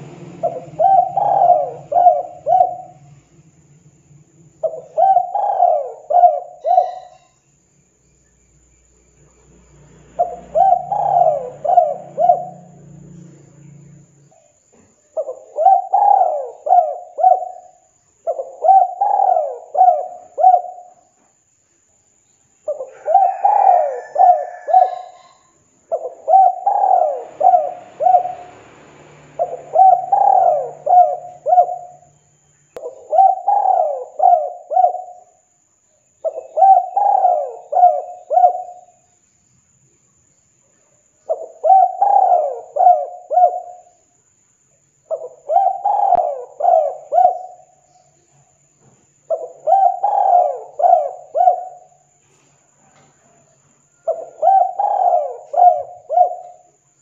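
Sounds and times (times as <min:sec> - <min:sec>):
dove cooing: 0:00.0 - 0:03.4, 0:04.5 - 0:07.4, 0:10.1 - 0:13.0, 0:15.1 - 0:21.1, 0:22.6 - 0:32.1, 0:32.8 - 0:35.4, 0:36.2 - 0:39.0, 0:41.3 - 0:44.0, 0:45.1 - 0:47.9, 0:49.3 - 0:52.2, 0:52.9 - 0:56.8.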